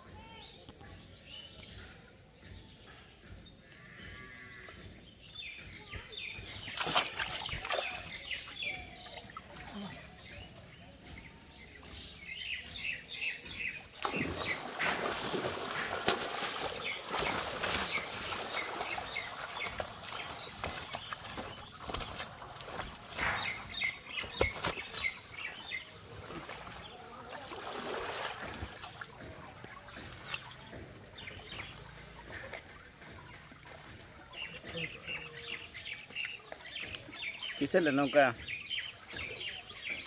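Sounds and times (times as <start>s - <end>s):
birds chirping: 0.1s - 40.0s
water splashing: 6.2s - 10.4s, 12.9s - 40.0s.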